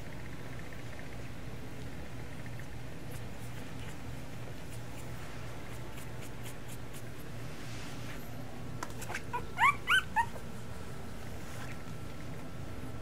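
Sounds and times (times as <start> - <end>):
puppy whimpering: 9.0 - 10.5.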